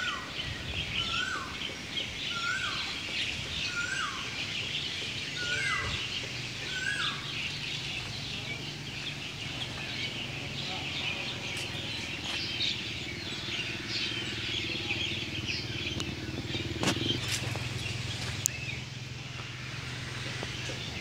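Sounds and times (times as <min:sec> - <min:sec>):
birds chirping: 0:00.0 - 0:21.0
low engine hum: 0:00.0 - 0:21.0.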